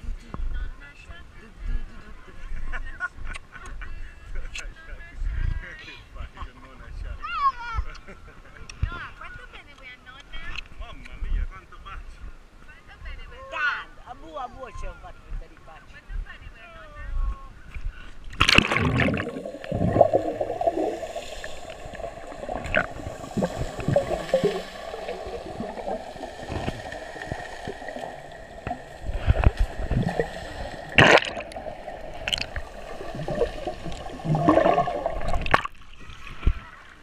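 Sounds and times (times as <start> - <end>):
rush of water: 18.3 - 37.0
underwater gurgling and bubbling: 18.4 - 35.8.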